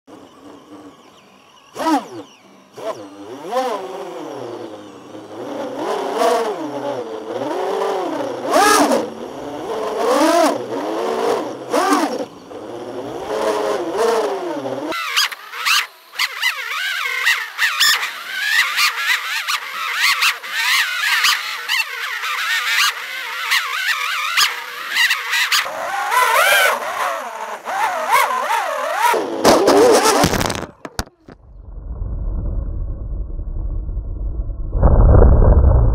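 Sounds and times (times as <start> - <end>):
drone propellers whining: 0.1 - 35.9.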